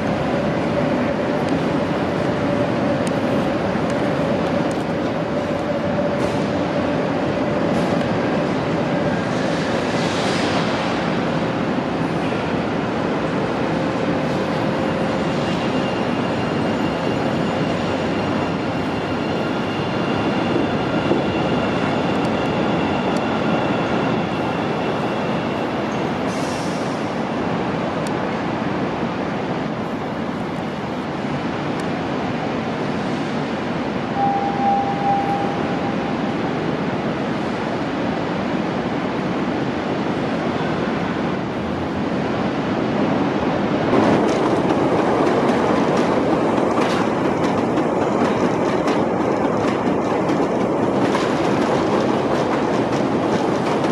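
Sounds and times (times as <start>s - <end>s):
train rolling rumble: 0.0s - 53.9s
brief tone: 34.1s - 36.2s.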